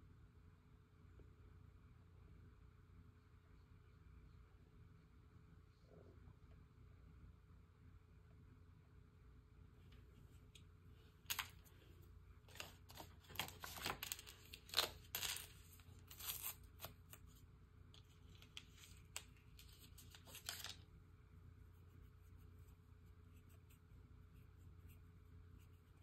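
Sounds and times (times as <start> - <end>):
tearing and crinkling by hand: 12.5 - 17.4, 18.0 - 20.8.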